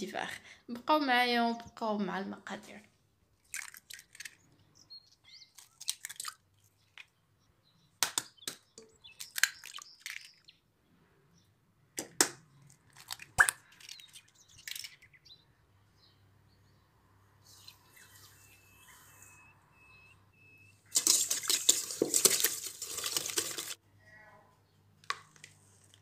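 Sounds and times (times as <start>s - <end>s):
eggs plopping into bowl: 3.4s - 4.4s, 5.6s - 6.4s, 8.0s - 10.4s, 12.0s - 15.0s, 20.9s - 23.8s
eggshells cracking on bowl: 3.4s - 4.5s, 5.5s - 7.1s, 8.0s - 10.5s, 12.0s - 15.1s, 20.9s - 23.8s.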